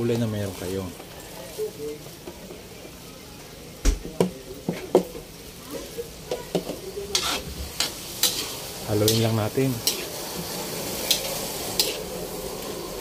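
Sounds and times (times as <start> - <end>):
knocks and taps against a wok: 3.8 - 5.2.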